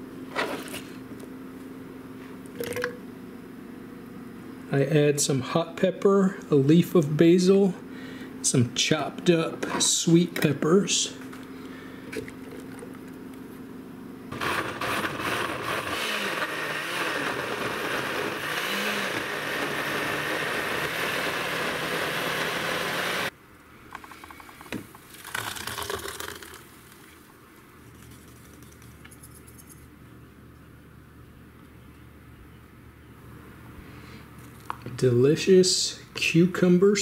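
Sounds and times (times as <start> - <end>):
blender running: 14.3 - 23.3.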